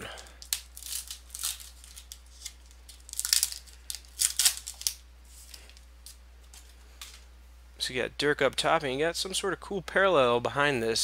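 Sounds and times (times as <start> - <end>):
foil wrapper tearing and crinkling: 0.4 - 5.7.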